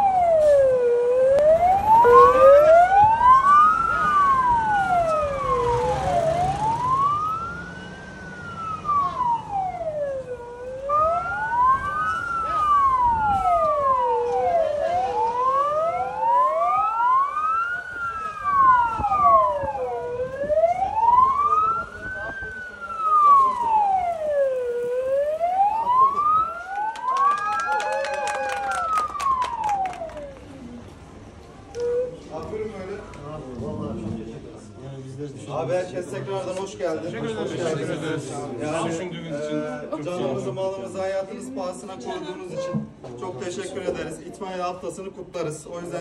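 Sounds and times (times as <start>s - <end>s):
fire engine siren wailing: 0.0s - 31.0s, 31.7s - 33.1s.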